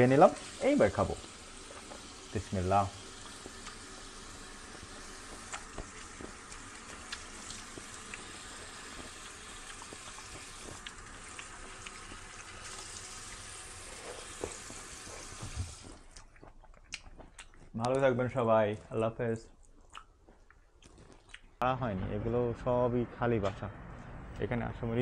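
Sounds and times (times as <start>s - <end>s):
tap water running onto grapes: 0.0s - 16.2s.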